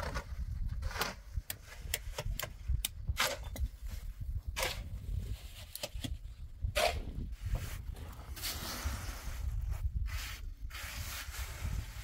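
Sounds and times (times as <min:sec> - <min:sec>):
hoe scraping through wet cement: 0:06.8 - 0:12.0.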